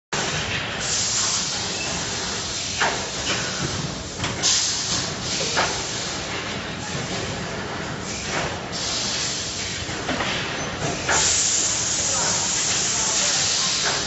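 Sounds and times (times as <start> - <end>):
machine mechanical hiss: 0.2 - 14.0
burst of hissing air: 11.1 - 14.0.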